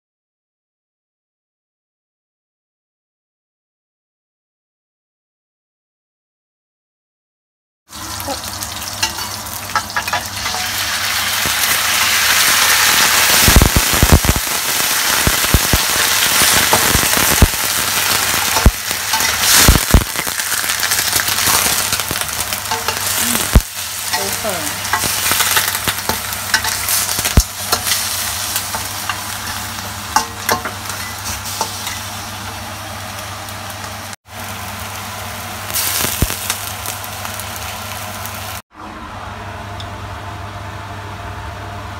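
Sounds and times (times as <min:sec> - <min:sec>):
food sizzling in hot oil: 0:07.9 - 0:38.6.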